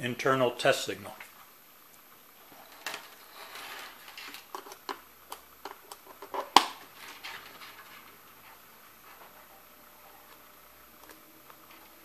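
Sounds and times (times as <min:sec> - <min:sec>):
small plastic clicks and rustles: 0:02.6 - 0:08.2.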